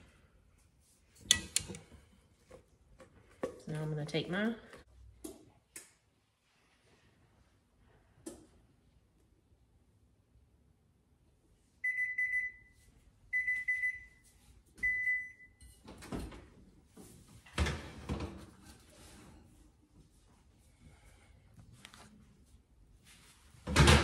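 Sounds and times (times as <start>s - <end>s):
oven beeper long beeps: 11.8s - 14.2s, 14.8s - 15.6s.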